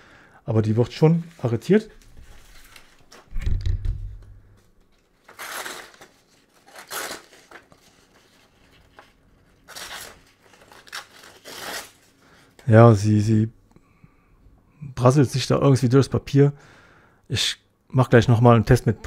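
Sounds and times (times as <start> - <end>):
low handling thud: 3.3 - 4.4.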